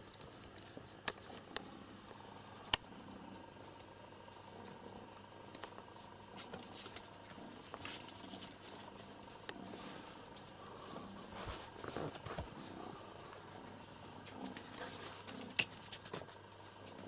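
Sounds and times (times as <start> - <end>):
kitten rustling and tapping: 5.6 - 10.6, 11.3 - 17.0.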